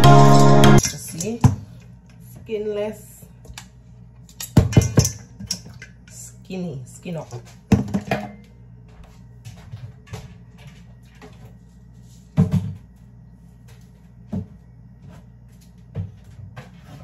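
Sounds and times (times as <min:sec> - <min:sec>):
bottles knocking on countertop: 0:07.7 - 0:08.4.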